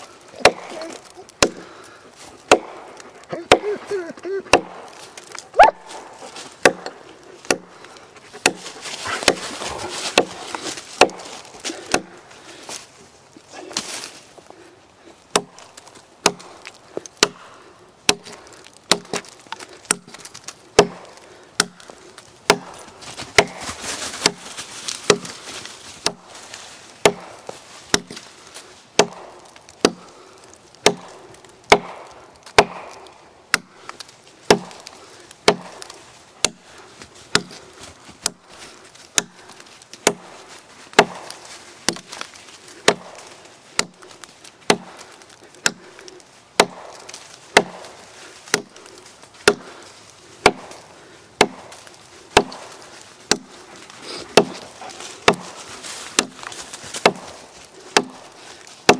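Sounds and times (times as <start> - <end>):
hatchet chopping into log: 0.4 - 1.7, 2.5 - 3.8, 4.5 - 5.4, 6.3 - 7.7, 8.4 - 12.1, 15.3 - 15.6, 16.2 - 17.4, 18.1 - 21.9, 22.5 - 24.4, 25.1 - 25.4, 27.0 - 28.3, 29.0 - 30.1, 30.8 - 36.6, 37.3 - 37.6, 38.2 - 38.4, 39.1 - 40.3, 40.9 - 45.9, 46.6 - 48.8, 49.4 - 49.8, 50.4 - 53.6, 54.2 - 57.4, 58.0 - 58.2.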